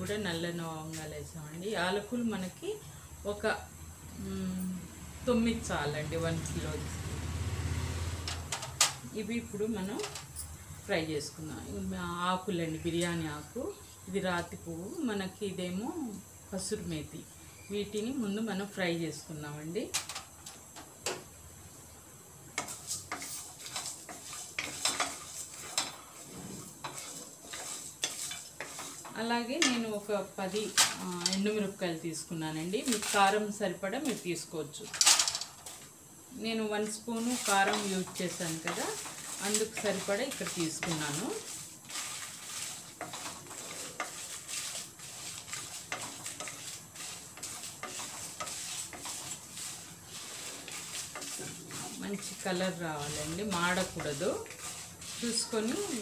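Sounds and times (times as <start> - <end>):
faint sizzle: 0.0 - 56.0
spatula scraping spices in pan: 22.5 - 56.0.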